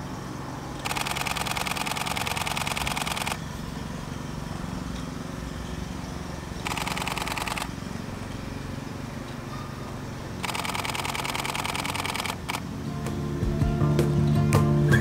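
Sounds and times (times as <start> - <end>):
camera shutter bursts: 0.8 - 3.4, 6.6 - 7.8, 10.4 - 12.7.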